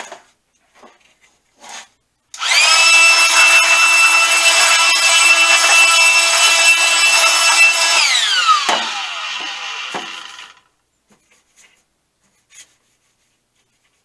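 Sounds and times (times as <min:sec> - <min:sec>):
power tool motor winding down: 0:02.4 - 0:10.7
knocks: 0:08.6 - 0:10.2.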